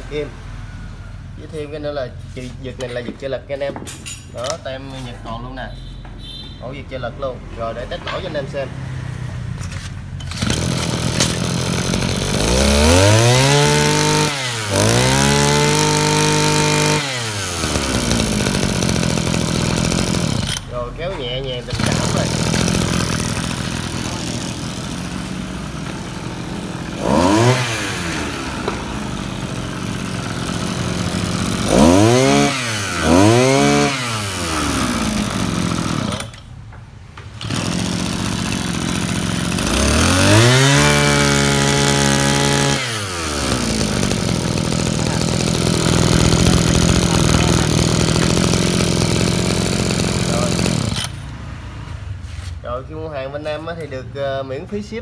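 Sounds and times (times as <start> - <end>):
two-stroke brush cutter revving: 9.6 - 36.5, 37.3 - 51.5.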